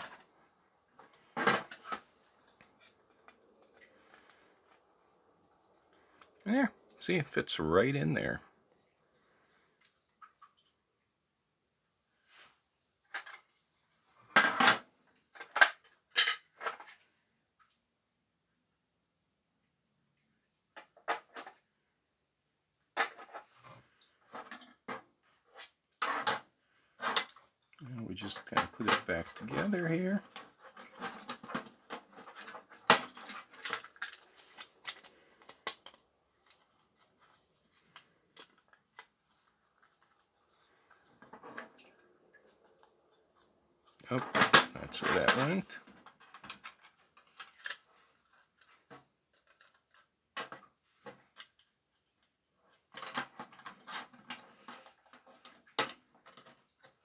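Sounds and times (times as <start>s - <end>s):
plastic parts rattling: 0.0s - 6.6s, 13.1s - 13.5s, 14.3s - 17.1s, 20.8s - 21.6s, 23.0s - 57.0s.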